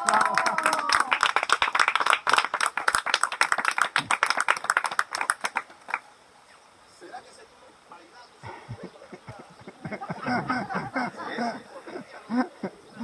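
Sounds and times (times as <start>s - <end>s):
people clapping: 0.0s - 6.1s.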